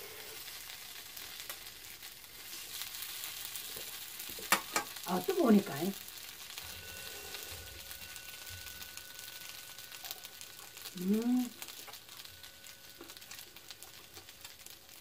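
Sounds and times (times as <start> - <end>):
pancakes sizzling in hot oil: 0.0 - 15.0
person humming: 11.0 - 11.6.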